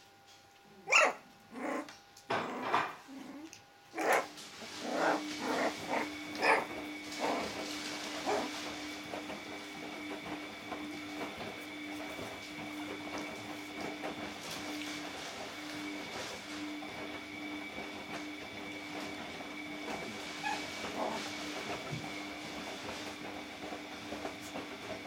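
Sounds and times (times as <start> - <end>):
puppies yapping and growling: 0.8 - 8.8, 20.0 - 22.1.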